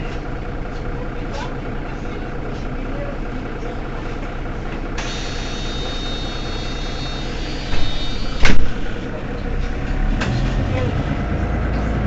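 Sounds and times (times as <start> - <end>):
bus engine idling: 0.0 - 12.0
loud sharp clunk: 7.7 - 8.9.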